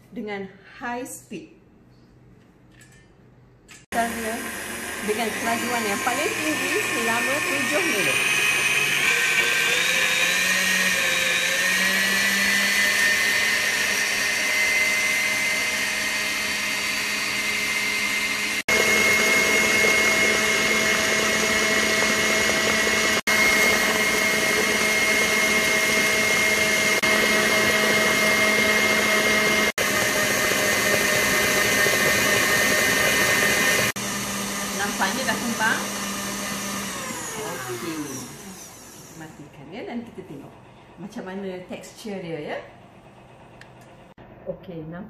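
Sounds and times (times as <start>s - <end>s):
stand mixer motor whining: 3.9s - 39.4s.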